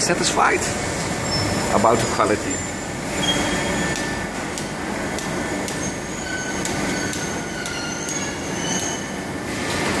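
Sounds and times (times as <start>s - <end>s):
workshop background noise: 0.0s - 10.0s
short thin high squeaks: 3.2s - 4.2s, 5.8s - 9.2s.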